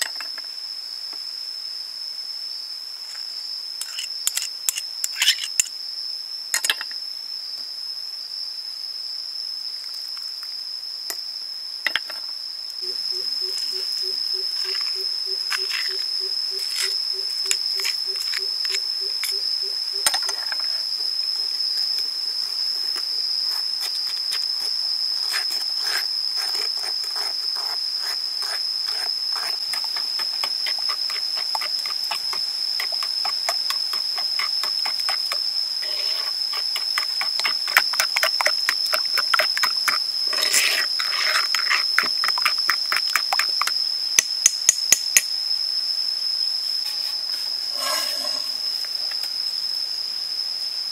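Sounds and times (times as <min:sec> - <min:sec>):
steady high-pitched whine: 0:00.0 - 0:50.9
metal spoon scraping stone bowl: 0:03.8 - 0:05.7, 0:25.9 - 0:43.7, 0:47.7 - 0:48.6.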